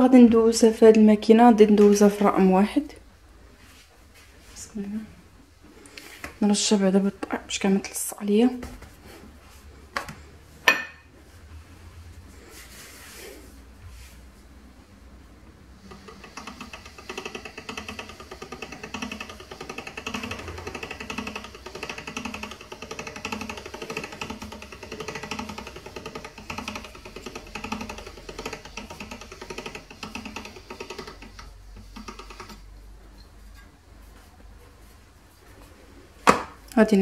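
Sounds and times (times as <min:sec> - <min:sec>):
pasta machine gears rattling: 0:15.8 - 0:32.7.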